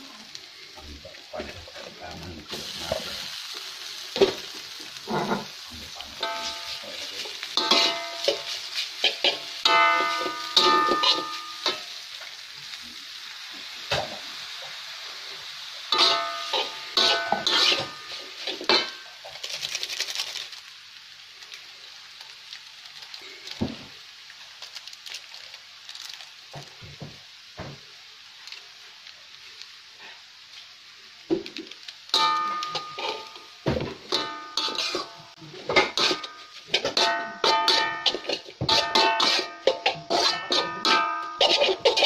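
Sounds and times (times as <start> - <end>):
frying oil sizzling: 0.0 - 42.0
metal spatula scraping wok: 5.0 - 5.6, 6.2 - 12.0, 15.9 - 19.1, 32.1 - 42.0.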